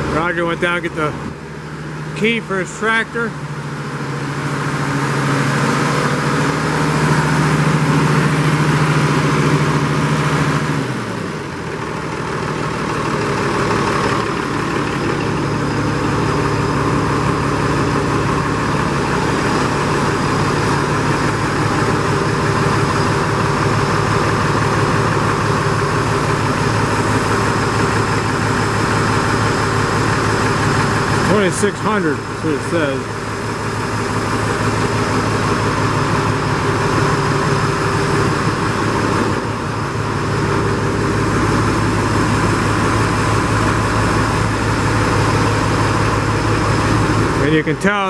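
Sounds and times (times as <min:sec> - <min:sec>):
tractor engine running: 0:00.0 - 0:48.0.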